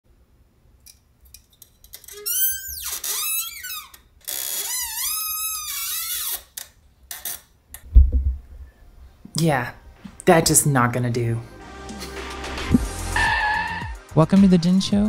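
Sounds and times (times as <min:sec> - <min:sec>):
boom arm squeaking: 0:02.0 - 0:08.9.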